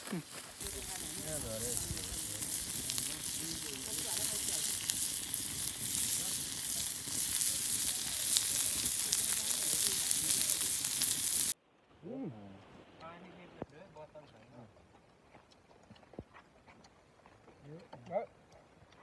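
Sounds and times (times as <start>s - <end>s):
meat sizzling with crackling pops: 0.0s - 11.6s.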